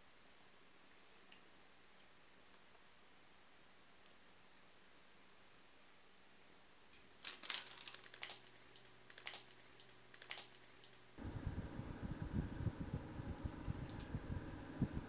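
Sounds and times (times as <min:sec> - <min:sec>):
food crackling: 0:07.0 - 0:11.0
oven grill rumbling: 0:11.2 - 0:15.0.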